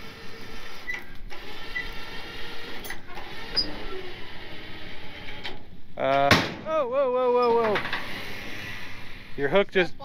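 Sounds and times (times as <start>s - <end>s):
electric winch whining: 0.0s - 5.6s, 7.4s - 9.6s.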